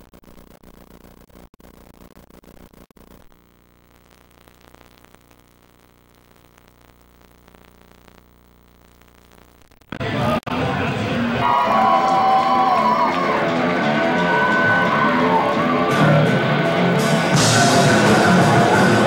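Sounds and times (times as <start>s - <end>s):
crackling static hiss: 0.0s - 10.6s.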